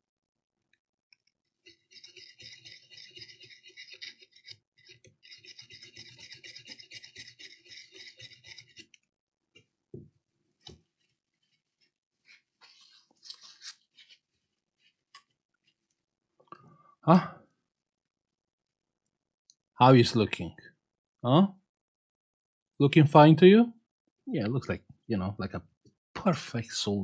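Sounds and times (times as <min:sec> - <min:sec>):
toothbrush scrubbing circuit board: 0:01.4 - 0:09.0.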